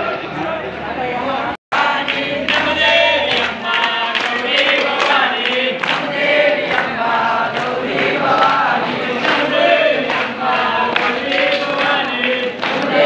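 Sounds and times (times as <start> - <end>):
crowd chanting in unison: 0.0 - 13.0.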